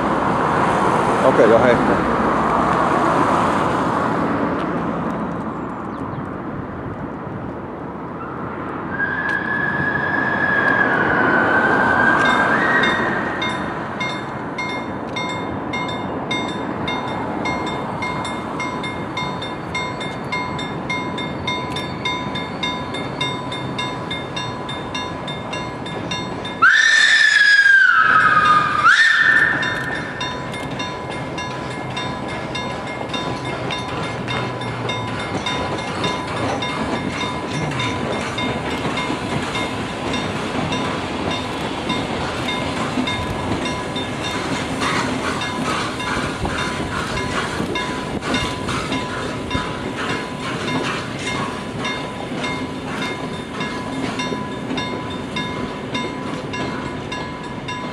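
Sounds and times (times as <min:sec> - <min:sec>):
steam whistle blowing: 0:08.9 - 0:13.5, 0:26.6 - 0:30.2
level-crossing warning bells: 0:10.2 - 0:57.9.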